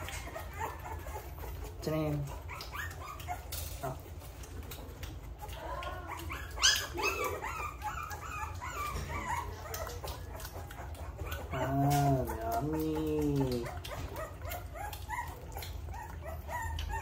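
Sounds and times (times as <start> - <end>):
puppy whining: 0.0 - 17.0.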